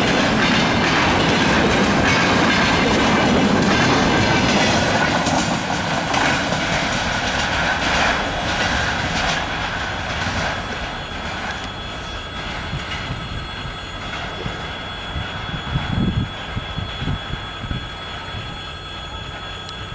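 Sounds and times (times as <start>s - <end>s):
wheels clattering over rail joints: 0.0s - 15.2s
freight train rolling past: 0.0s - 19.9s
thin steady wheel squeal: 0.0s - 19.9s.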